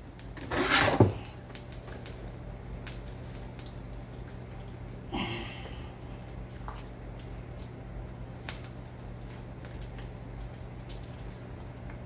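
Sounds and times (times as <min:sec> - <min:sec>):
steady low hum: 0:00.0 - 0:12.0
utensil scraping in a pot: 0:00.3 - 0:01.4.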